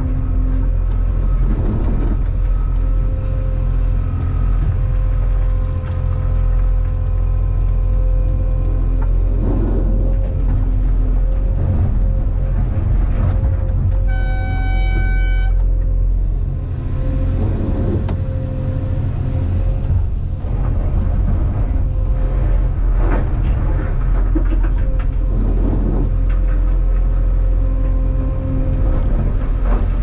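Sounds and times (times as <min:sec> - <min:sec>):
diesel engine running: 0:00.0 - 0:30.0
hydraulics whining: 0:00.0 - 0:30.0
horn beep: 0:14.1 - 0:15.6.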